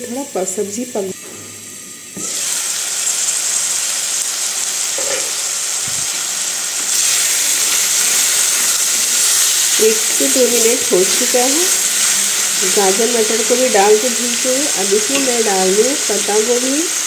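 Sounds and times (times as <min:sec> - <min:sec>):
vegetables sizzling in hot oil: 0:00.0 - 0:17.0.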